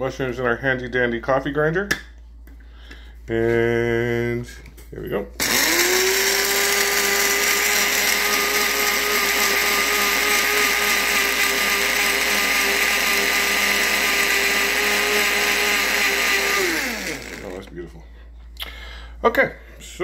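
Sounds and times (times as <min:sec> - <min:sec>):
coffee grinder motor whine: 0:05.4 - 0:17.8.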